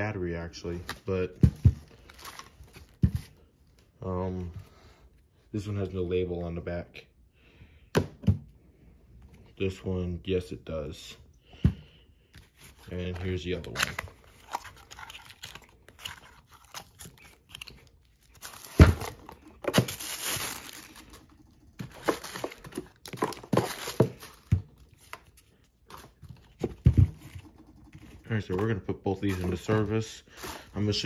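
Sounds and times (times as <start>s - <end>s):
cardboard box rustling: 12.4s - 31.0s
plastic bag crinkling: 12.8s - 26.6s.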